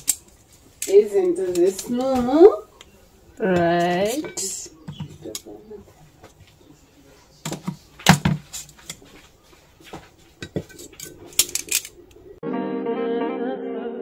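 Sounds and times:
guitar music with singing: 0:12.4 - 0:14.0.

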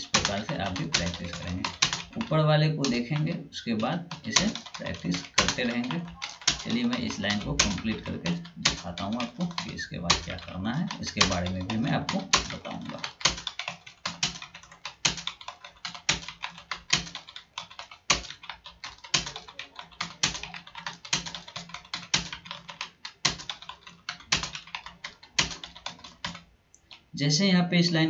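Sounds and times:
typing on computer keyboard: 0:00.0 - 0:27.1.

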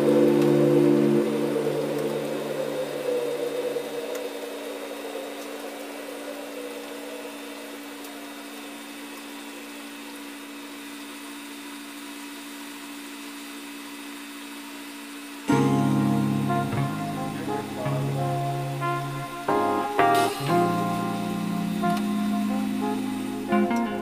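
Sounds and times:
steady hiss: 0:15.4 - 0:24.0.

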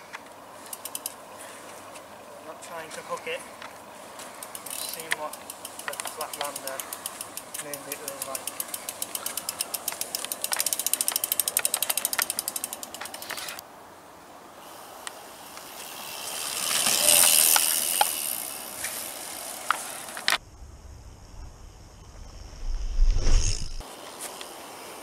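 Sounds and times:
bike tyres rolling over dirt: 0:00.0 - 0:13.6, 0:14.6 - 0:24.6
bike freehub clicking: 0:00.1 - 0:01.2, 0:03.6 - 0:13.6, 0:15.0 - 0:20.4
sharp ticks: 0:00.6 - 0:01.2, 0:04.3 - 0:13.6.

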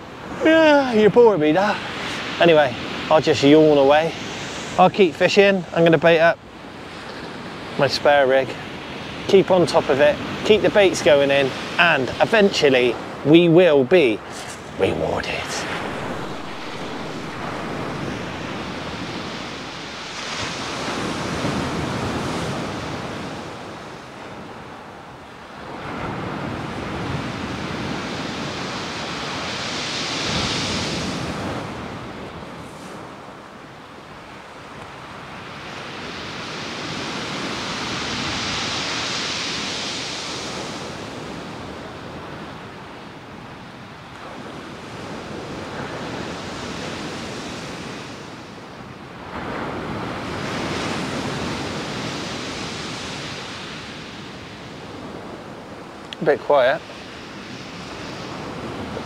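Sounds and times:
wind on microphone: 0:00.0 - 0:59.0
surf breaking on shingle beach: 0:00.2 - 0:24.6.

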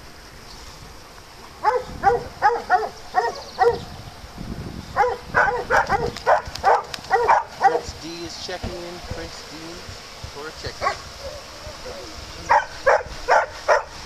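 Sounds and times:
dog barking: 0:01.6 - 0:03.8, 0:05.0 - 0:07.9, 0:10.8 - 0:11.9, 0:12.5 - 0:14.0.

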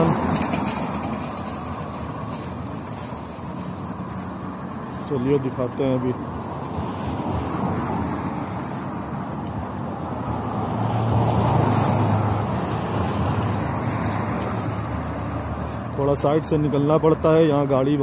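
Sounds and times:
street traffic noise: 0:00.0 - 0:18.0
car passing close by: 0:06.6 - 0:16.0.

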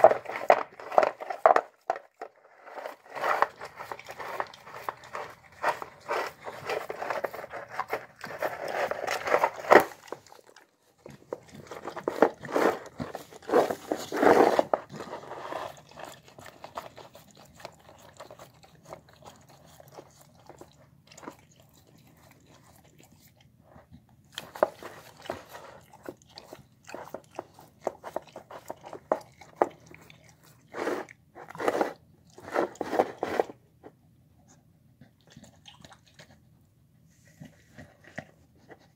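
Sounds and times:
dog eating from a bowl: 0:00.0 - 0:38.9
wet smacking licking and chewing: 0:03.0 - 0:13.9, 0:14.8 - 0:31.6, 0:35.0 - 0:36.5.

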